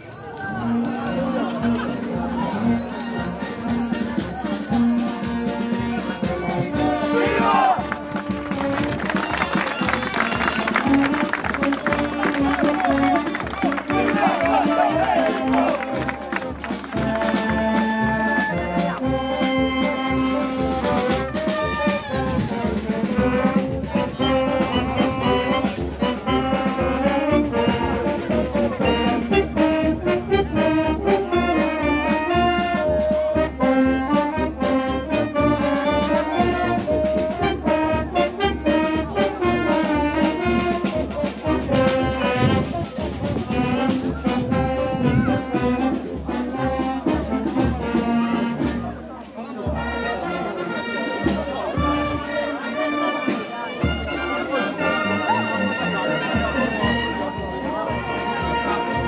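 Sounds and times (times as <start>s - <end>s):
brass band playing a march: 0.0s - 59.0s
drum beat: 0.4s - 9.3s.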